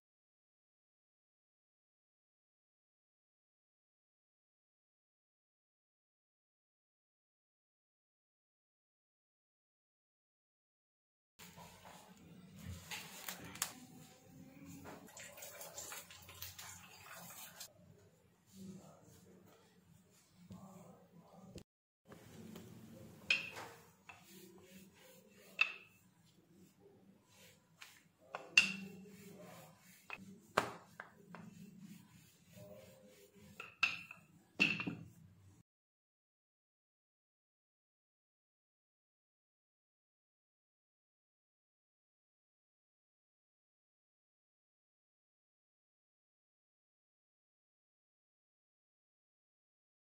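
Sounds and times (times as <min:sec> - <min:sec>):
rolling pin rubbing on dough: 0:22.1 - 0:34.6.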